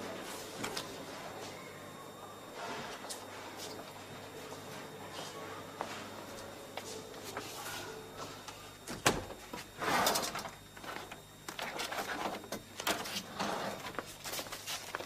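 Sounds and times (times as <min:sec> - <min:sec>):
door shutting: 0:08.9 - 0:10.4
papers rustling on desk: 0:11.6 - 0:15.0.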